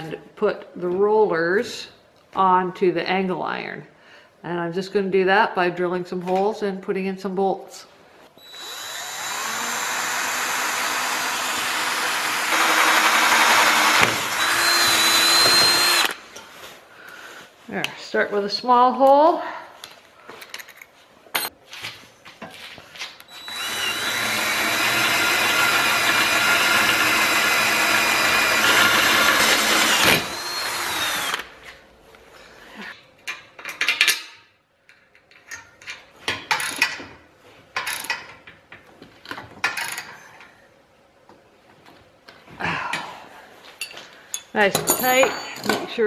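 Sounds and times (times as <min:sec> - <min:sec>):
cordless drill whining: 0:08.4 - 0:16.2, 0:23.3 - 0:31.5.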